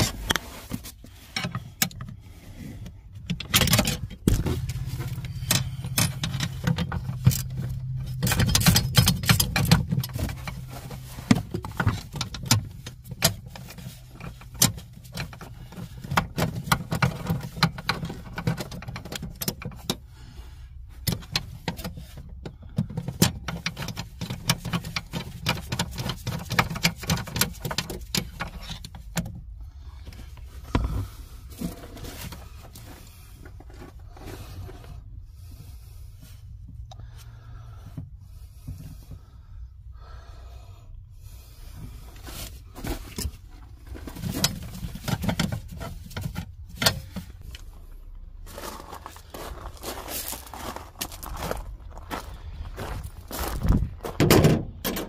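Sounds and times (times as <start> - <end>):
low steady hum: 0.0 - 55.0
metallic clinks and rattles of tools: 3.3 - 20.1.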